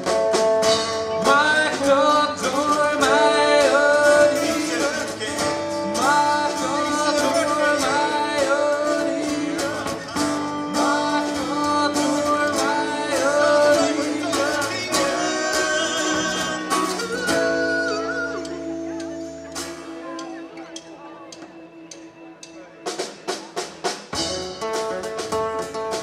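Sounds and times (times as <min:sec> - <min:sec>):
strummed acoustic guitars: 0:00.0 - 0:21.4, 0:22.6 - 0:26.0
drums: 0:00.0 - 0:26.0
keyboard: 0:00.0 - 0:26.0
man singing: 0:00.8 - 0:19.0.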